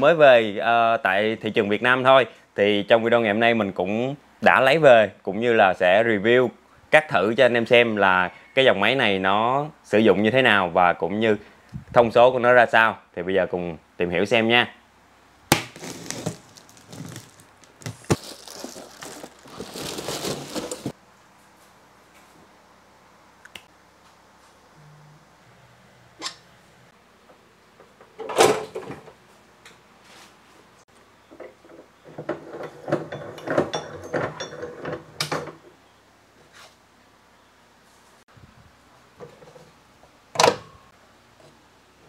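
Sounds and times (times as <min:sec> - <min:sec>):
cardboard rustling: 0:15.7 - 0:21.0
plastic bag crinkling: 0:15.7 - 0:21.0.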